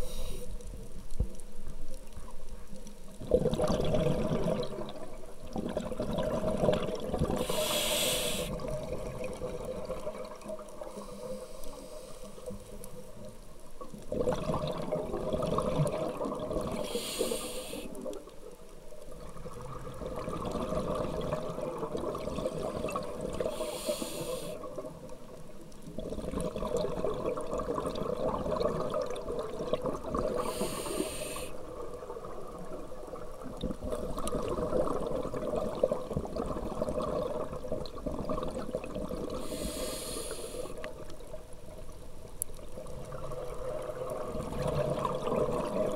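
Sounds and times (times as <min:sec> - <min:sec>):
bubbling exhalation: 0:03.2 - 0:10.1, 0:14.1 - 0:17.1
hissing regulator inhalation: 0:07.3 - 0:08.6, 0:16.8 - 0:18.0, 0:23.4 - 0:24.6, 0:30.4 - 0:31.6, 0:39.4 - 0:40.8.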